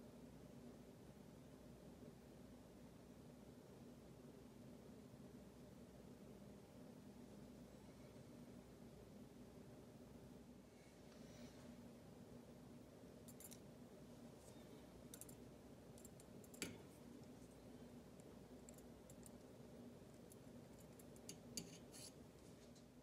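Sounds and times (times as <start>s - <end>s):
faint steady hum: 0.0s - 23.0s
tweezers clicking on metal: 15.1s - 15.4s, 18.6s - 19.4s.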